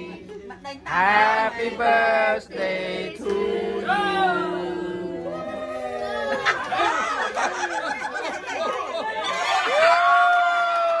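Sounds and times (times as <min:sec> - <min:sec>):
family singing a celebration song: 0:00.0 - 0:06.9
people chattering: 0:03.8 - 0:09.8
people laughing: 0:05.9 - 0:09.9.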